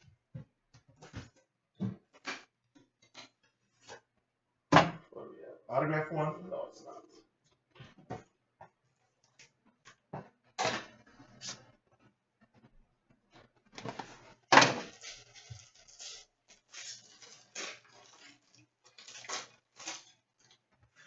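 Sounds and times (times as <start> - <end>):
wrapping rustling and crinkling: 13.7 - 21.0.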